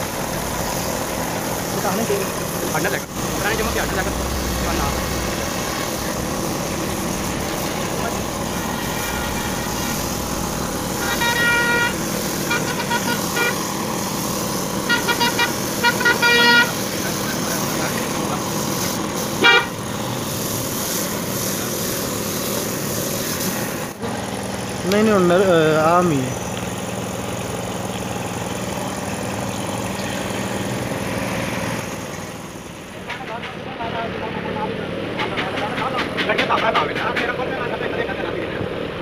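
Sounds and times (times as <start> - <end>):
air spray gun hissing: 0.0 - 24.0
vehicle horns tooting: 11.0 - 13.6, 14.8 - 16.8, 19.4 - 19.8.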